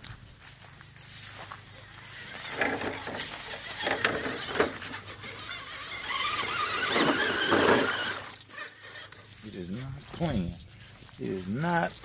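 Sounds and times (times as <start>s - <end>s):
electric motor whining: 1.8s - 12.0s
tires churning muddy water: 1.9s - 9.2s.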